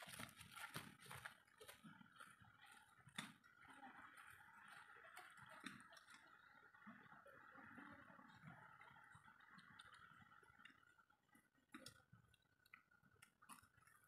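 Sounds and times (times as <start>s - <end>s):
faint clicks and ticks: 0.0s - 14.0s.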